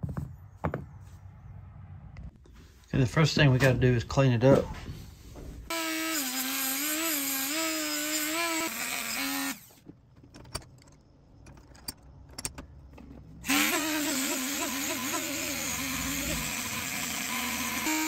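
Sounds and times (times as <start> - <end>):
rotary tool motor whine: 13.4 - 18.0.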